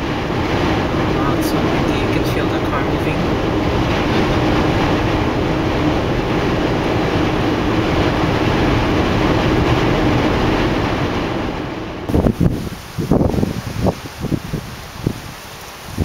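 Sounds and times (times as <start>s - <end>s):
steady low hum: 0.0s - 10.3s.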